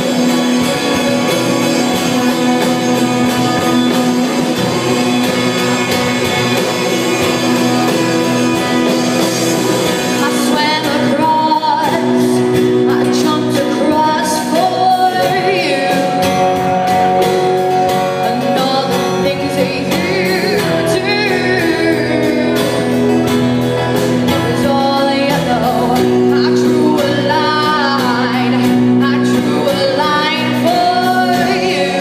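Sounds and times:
drum kit beat: 0.0s - 26.4s
electric and acoustic guitars: 0.0s - 32.0s
woman singing: 10.0s - 16.6s, 18.1s - 23.1s, 24.2s - 32.0s.

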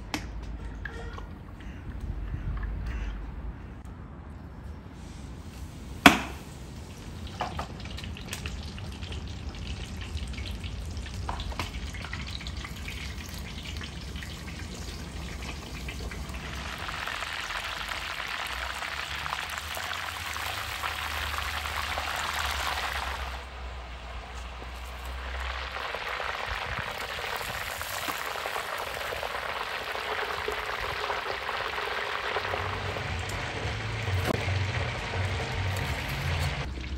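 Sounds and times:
chicken deep-frying in oil: 6.0s - 36.9s
sharp knock: 6.1s - 6.4s.

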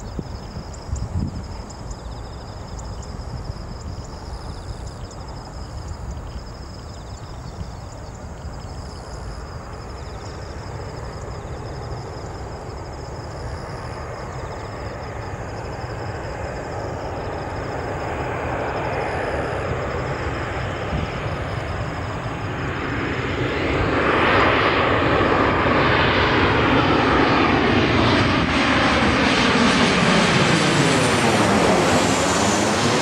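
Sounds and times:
jet engines rushing: 6.8s - 33.0s.

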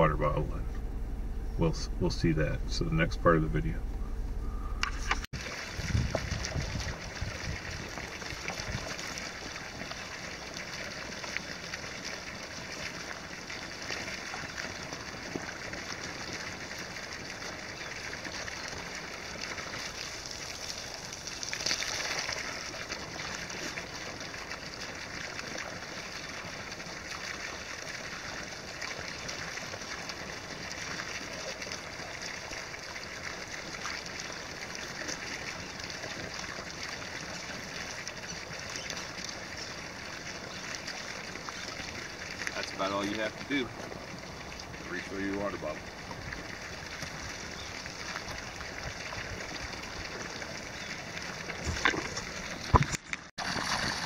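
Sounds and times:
low rumble: 0.0s - 8.8s
water pouring and splashing: 5.0s - 54.0s
water bottle filling: 5.4s - 54.0s.

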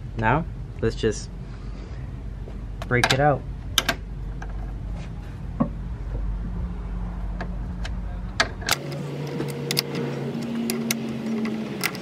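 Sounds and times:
steady low hum: 0.0s - 12.0s
sharp metallic clicks: 7.4s - 12.0s.

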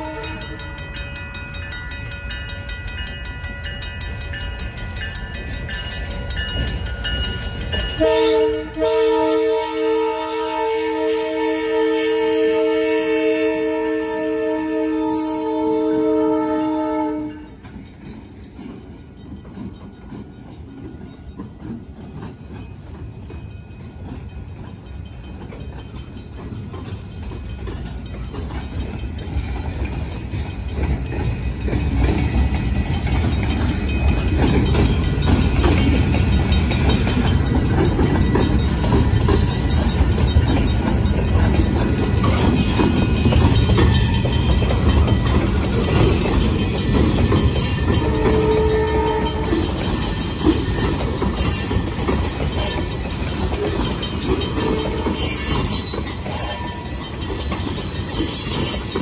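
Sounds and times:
locomotive horn: 0.0s - 0.6s, 8.0s - 17.6s, 48.0s - 49.7s, 54.6s - 55.5s
crossing bell ringing: 0.0s - 59.0s
train wheels rumbling on rails: 0.0s - 59.0s.

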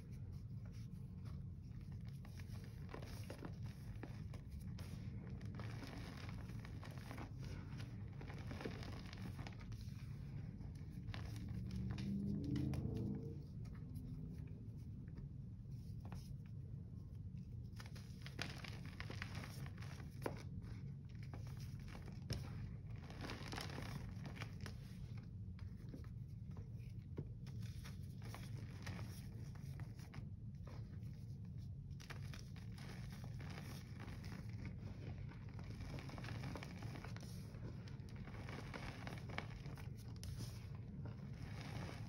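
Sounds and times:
low steady hum: 0.0s - 42.0s
powder crunching and crinkling: 32.0s - 42.0s.

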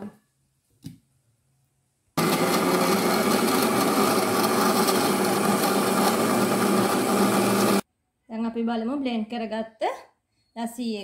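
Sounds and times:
electric blender running: 2.2s - 7.8s.

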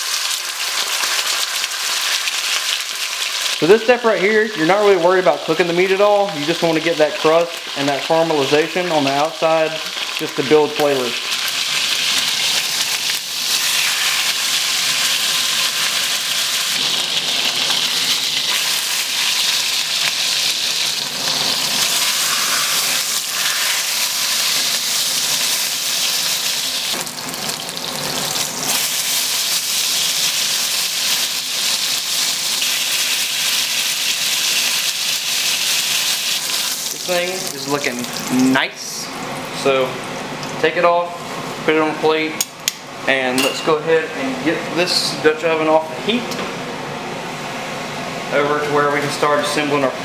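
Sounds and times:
meat sizzling in hot oil: 0.0s - 4.6s, 5.4s - 38.4s.

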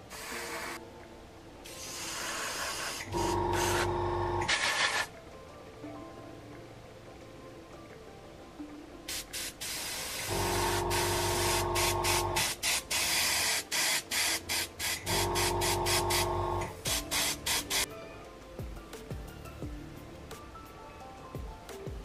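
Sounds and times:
airbrush spraying hiss: 0.0s - 0.8s, 1.6s - 5.1s, 9.1s - 17.9s
steady hum: 3.1s - 4.5s, 10.3s - 12.5s, 15.0s - 17.8s.

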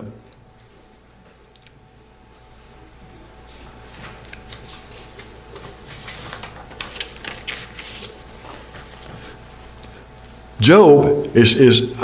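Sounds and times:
rustling near microphone: 2.3s - 10.3s.

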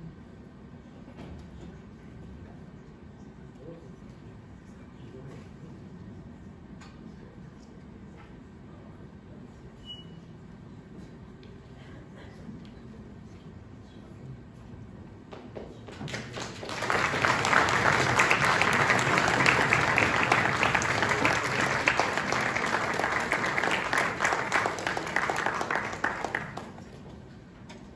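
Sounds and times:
audience applauding: 16.0s - 27.2s.

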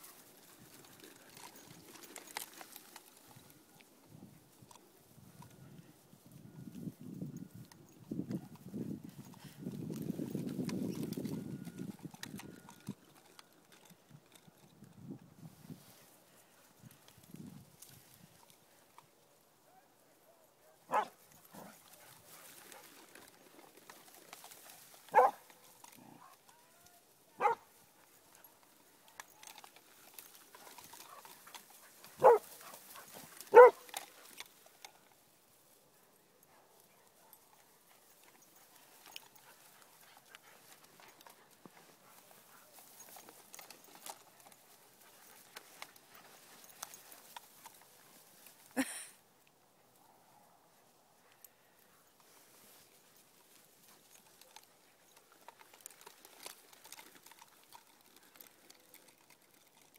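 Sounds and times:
dog barking: 20.9s - 21.7s, 25.1s - 25.4s, 27.4s - 27.6s, 32.2s - 32.4s, 33.5s - 33.9s.

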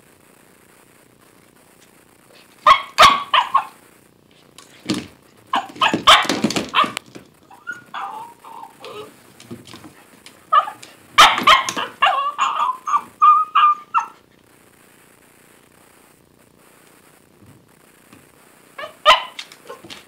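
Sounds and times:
puppy barking and yipping: 2.6s - 3.8s, 5.5s - 9.1s, 10.5s - 14.2s, 18.8s - 20.0s
plastic toy knocking on floor: 4.8s - 7.3s
puppy whining: 5.5s - 9.2s, 10.5s - 14.2s, 18.8s - 20.0s.

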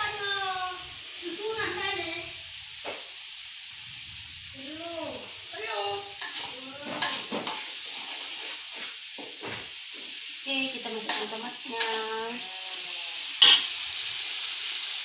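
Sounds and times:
paste sizzling in hot oil: 0.0s - 15.0s
spatula scraping a wok: 5.3s - 10.2s, 10.8s - 12.5s, 13.2s - 14.6s.

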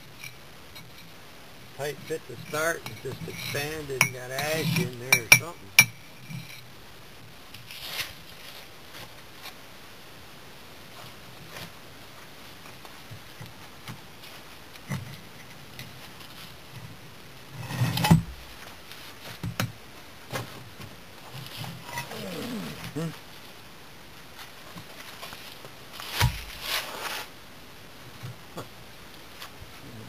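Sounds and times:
bricks scraping and knocking on gravel: 26.0s - 27.3s.

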